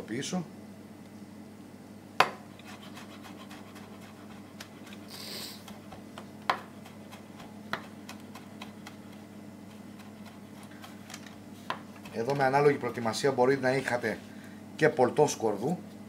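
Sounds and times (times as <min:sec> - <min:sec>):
steady low hum: 0:00.0 - 0:16.0
knife crushing garlic on board: 0:02.2 - 0:05.0, 0:05.6 - 0:12.6
short hiss: 0:05.1 - 0:05.6.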